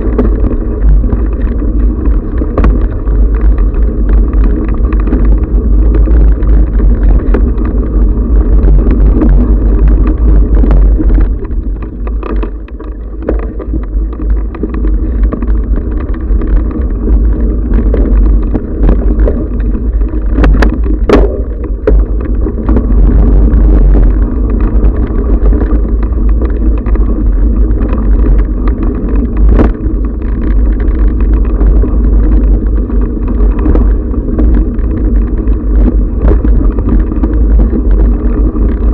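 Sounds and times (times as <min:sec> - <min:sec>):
camera rumbling and rattling on bike: 0:00.0 - 0:38.9
wind buffeting microphone: 0:00.0 - 0:38.9
sharp knocks: 0:20.4 - 0:22.0.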